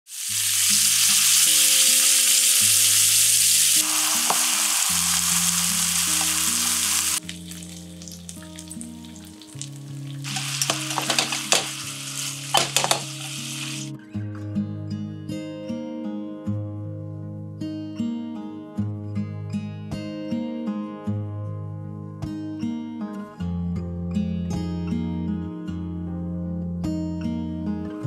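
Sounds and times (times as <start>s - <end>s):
food sizzling in a frying pan: 0.1s - 13.9s
soft background music: 3.8s - 28.0s.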